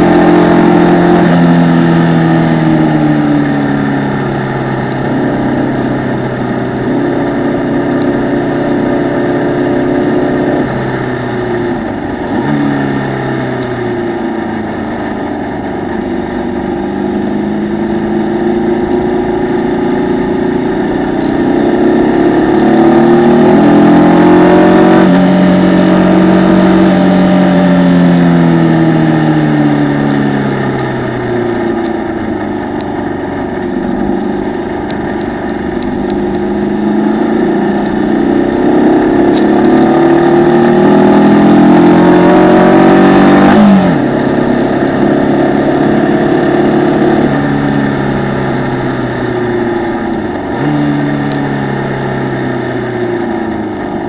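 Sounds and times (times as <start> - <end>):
racing car engine revving: 0.0 - 54.0.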